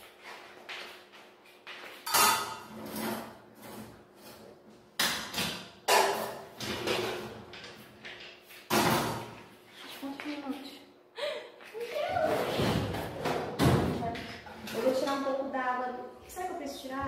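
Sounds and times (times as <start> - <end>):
metal cookware knocks and clatters: 2.0 - 3.4, 5.0 - 7.8.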